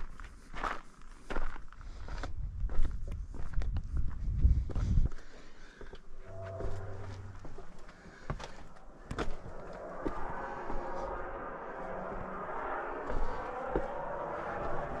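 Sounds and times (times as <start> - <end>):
steady rushing noise: 6.2 - 15.0.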